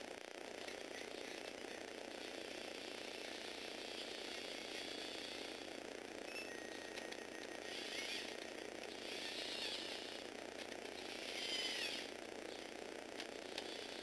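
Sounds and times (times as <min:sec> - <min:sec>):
gear whine bending in pitch: 0:00.0 - 0:14.0
toy electric motor whirring: 0:00.0 - 0:14.0.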